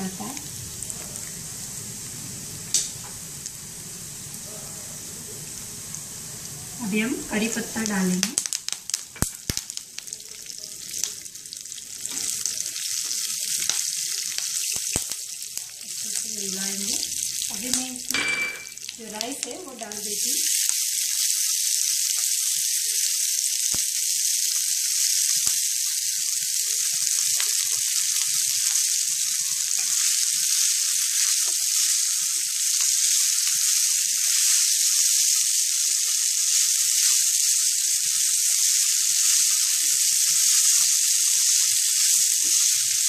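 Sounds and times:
spices sizzling in frying pan: 0.0s - 43.0s.

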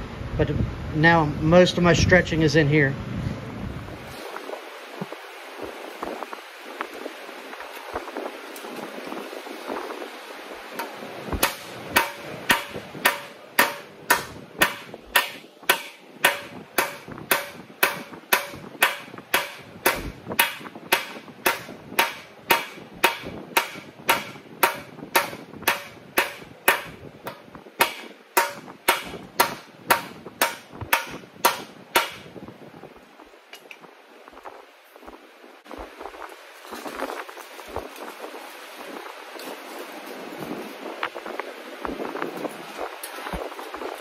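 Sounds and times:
hammer on sheet steel: 10.8s - 32.3s.

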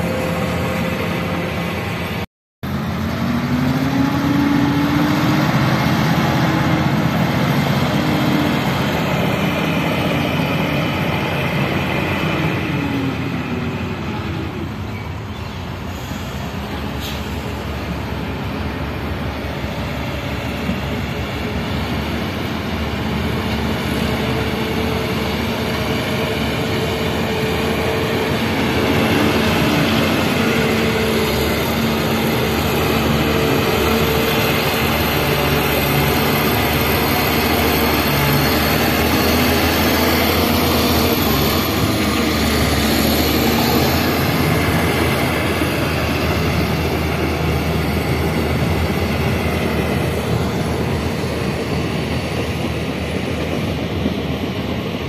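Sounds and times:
bulldozer engine under load: 0.0s - 55.0s
dump truck engine running: 0.0s - 55.0s.

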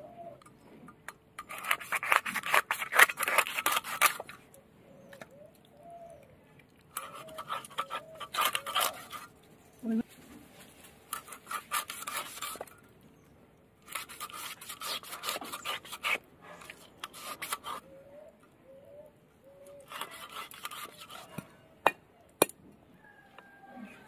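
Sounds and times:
blade scraping and slicing chicken: 1.4s - 4.3s, 7.0s - 9.3s, 11.1s - 12.8s, 13.8s - 17.9s, 19.8s - 21.5s.

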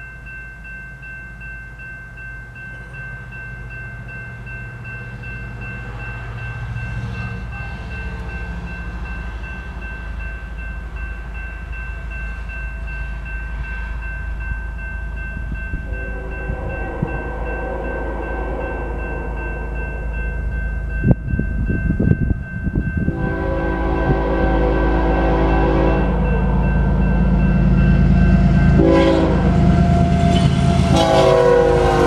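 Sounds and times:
freight train rumble: 0.0s - 32.0s
railroad crossing bell ringing: 0.0s - 32.0s
locomotive horn: 15.8s - 19.9s, 23.1s - 26.6s, 28.8s - 32.0s.

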